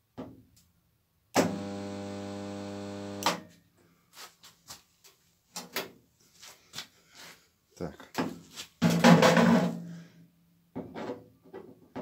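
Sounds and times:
stud welder humming: 1.4s - 3.4s.

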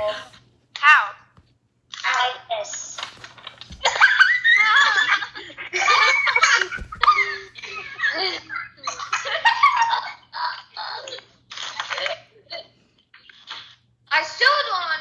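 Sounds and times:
children laughing: 3.8s - 12.7s.

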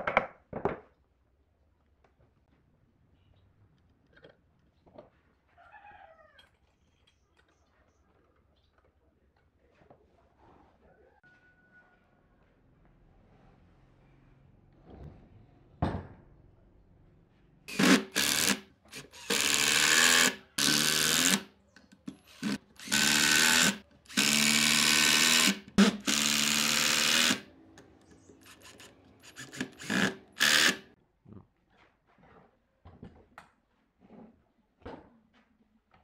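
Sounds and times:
knock: 15.8s - 16.2s
impact driver driving screws into wood: 17.7s - 21.5s, 22.2s - 27.4s, 28.4s - 30.8s.

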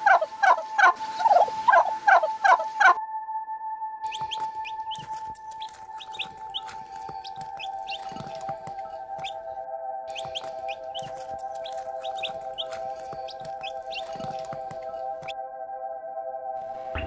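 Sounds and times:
turkey gobbling: 0.0s - 3.0s, 4.1s - 9.5s, 10.1s - 15.3s.

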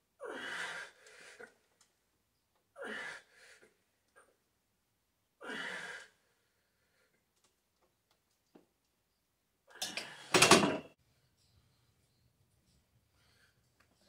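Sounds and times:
man breathing heavily: 0.2s - 1.7s.

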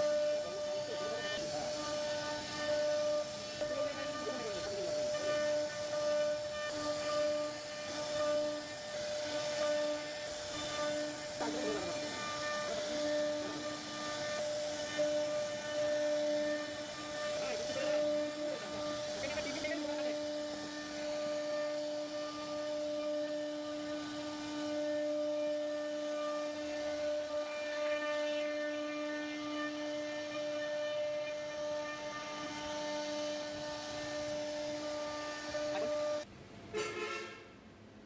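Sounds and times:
router spindle whining: 0.0s - 36.3s.

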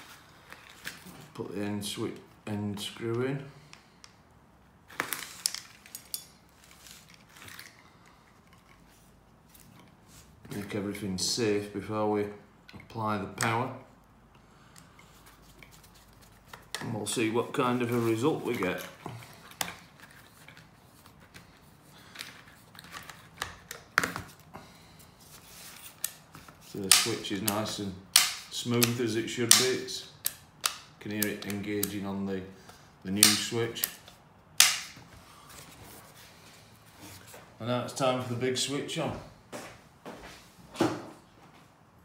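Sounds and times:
soft rustle: 15.0s - 16.7s
sharp clicks of handling plastic: 25.8s - 35.0s.

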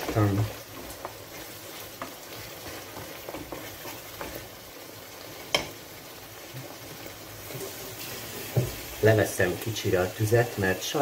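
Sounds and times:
wooden spoon scraping a pan: 0.0s - 4.6s, 6.4s - 9.2s
sauce sizzling in a frying pan: 0.0s - 11.0s.

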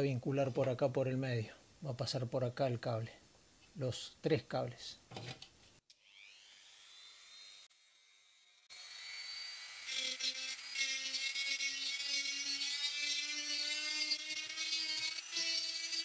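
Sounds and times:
rotary tool cutting plastic: 9.6s - 16.0s.

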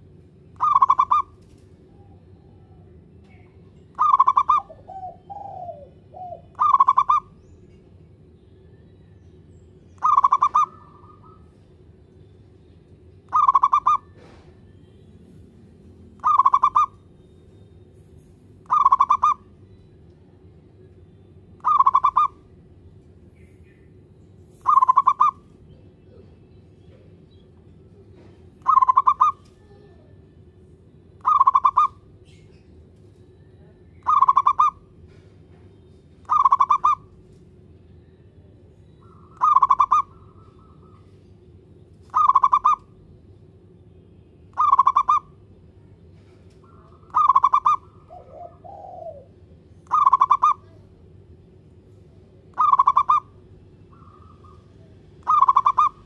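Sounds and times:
dove trilled cooing: 0.6s - 2.8s, 3.9s - 7.4s, 10.0s - 11.6s, 13.3s - 14.5s, 16.2s - 17.0s, 18.6s - 19.5s, 21.6s - 22.5s, 24.6s - 26.4s, 28.2s - 30.1s, 31.2s - 32.0s, 34.0s - 35.3s, 36.2s - 37.2s, 39.0s - 41.2s, 42.1s - 42.9s, 44.5s - 45.3s, 46.6s - 50.9s, 52.5s - 53.3s, 53.9s - 56.0s.

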